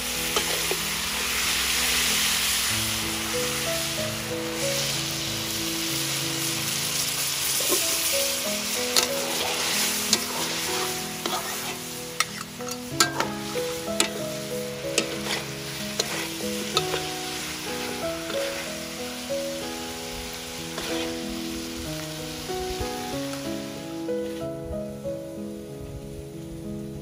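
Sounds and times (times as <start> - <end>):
meat sizzling in a wok: 0.0 - 26.7
soft background music: 0.0 - 27.0
metal spatula scraping a pan: 0.2 - 2.3, 8.6 - 19.0, 20.7 - 21.2.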